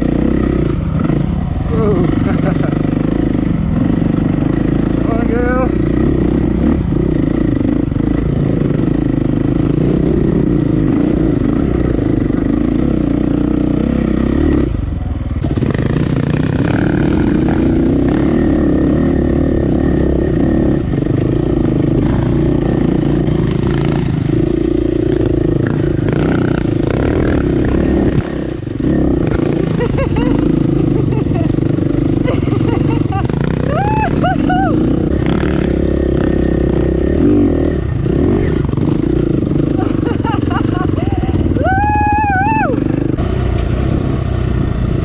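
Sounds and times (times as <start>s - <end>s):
dirt bike engine running: 0.0s - 45.0s.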